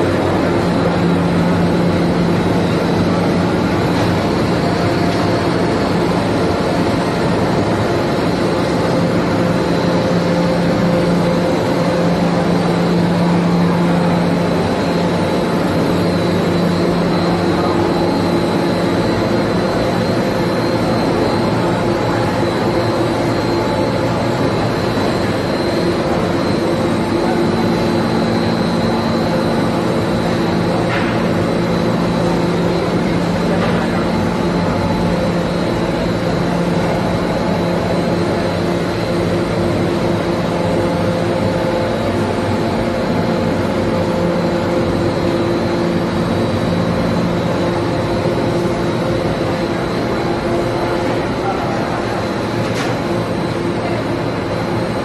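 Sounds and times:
constant low hum: 0.0 - 55.0
machinery mechanical drone: 0.0 - 55.0.

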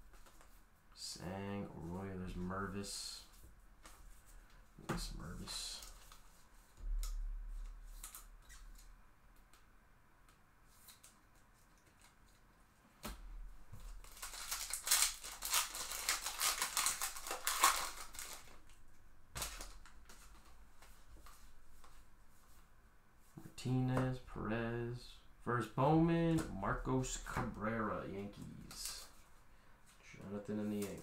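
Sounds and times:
foil wrapper crinkling and tearing: 13.9 - 18.8.

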